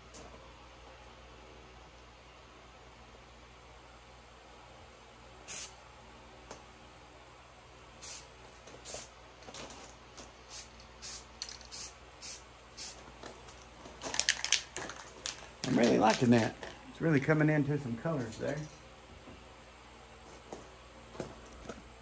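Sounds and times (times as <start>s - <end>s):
spray paint can hissing: 5.5s - 5.8s, 8.0s - 9.1s, 10.5s - 13.0s.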